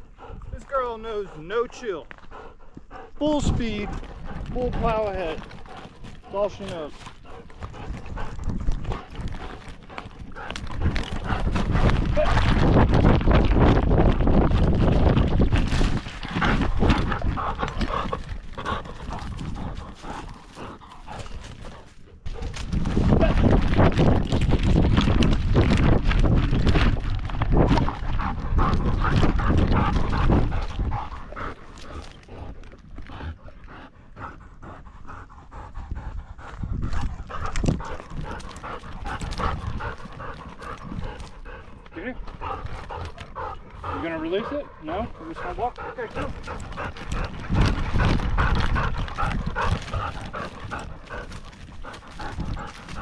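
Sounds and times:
dog panting: 0.0s - 22.6s, 27.6s - 53.0s
camera jostling rumble: 3.3s - 33.1s, 45.7s - 53.0s.

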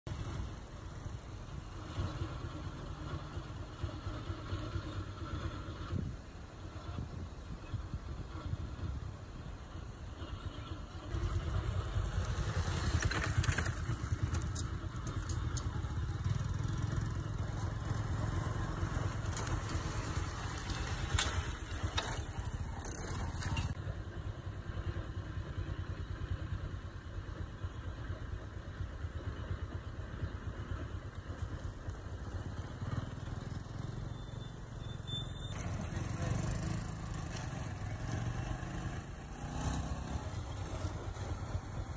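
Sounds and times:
small engine running: 30.7s - 41.9s.

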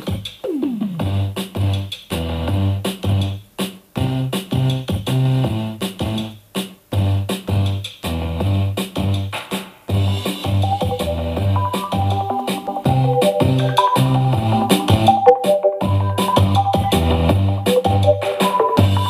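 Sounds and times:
music with bass and keyboard chords: 0.0s - 3.4s, 4.0s - 6.4s, 7.0s - 19.0s.

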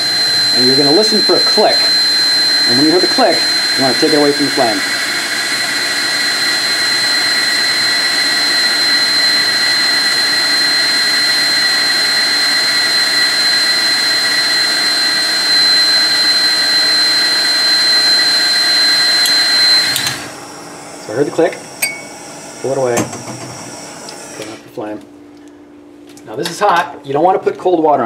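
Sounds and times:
torch flame hissing: 0.0s - 13.8s.

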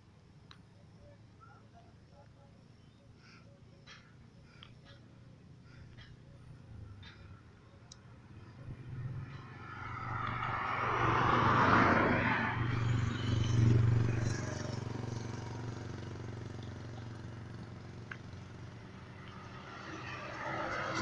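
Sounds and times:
vehicle passing with road noise: 0.0s - 21.0s.

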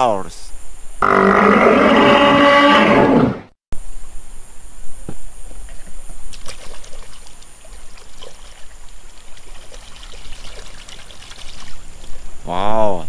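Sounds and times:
water splashing: 6.3s - 12.3s
flowing stream: 6.3s - 12.4s.

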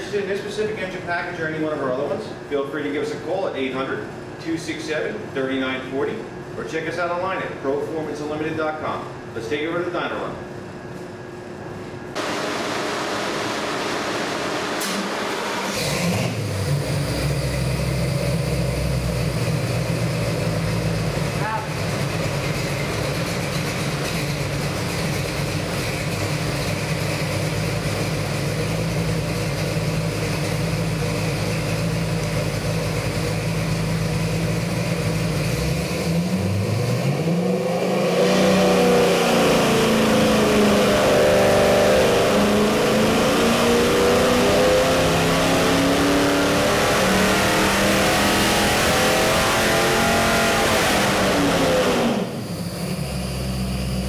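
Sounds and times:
engine running and revving: 12.2s - 54.0s.

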